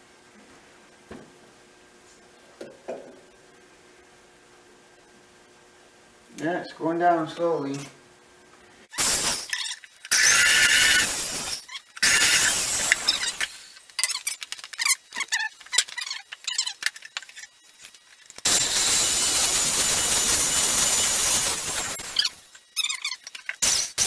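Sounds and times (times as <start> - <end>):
electric drill boring into wood: 10.1 - 11.4, 12.0 - 13.5
clicks and crackles: 11.6 - 18.5.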